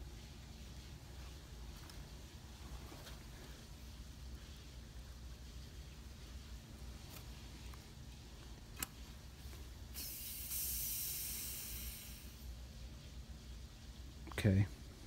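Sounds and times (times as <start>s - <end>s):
air hissing into jar: 9.9s - 12.5s.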